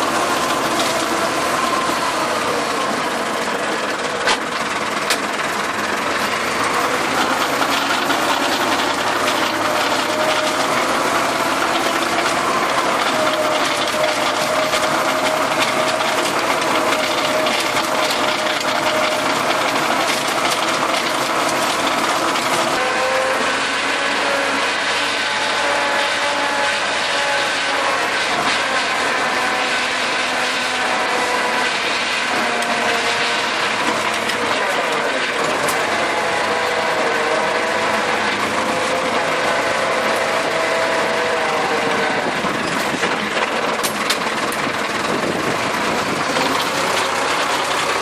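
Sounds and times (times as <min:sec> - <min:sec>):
tractor engine under load: 0:00.0 - 0:48.0.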